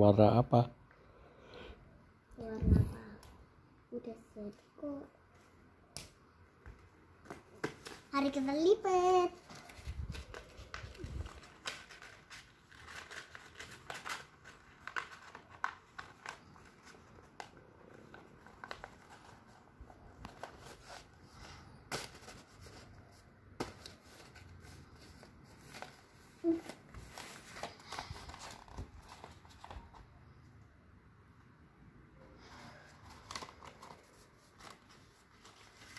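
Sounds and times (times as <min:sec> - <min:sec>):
paper crinkling and rustling: 0:07.2 - 0:30.1, 0:32.5 - 0:35.9.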